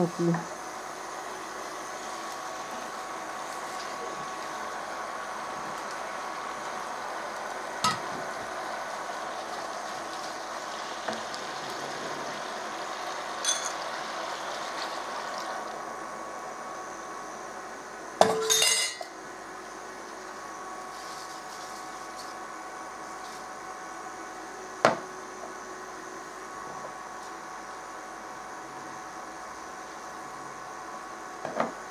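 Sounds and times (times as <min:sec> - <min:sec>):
spinach sizzling in a pan: 0:00.0 - 0:31.9
glass jar clinking: 0:13.4 - 0:13.8, 0:18.2 - 0:19.1.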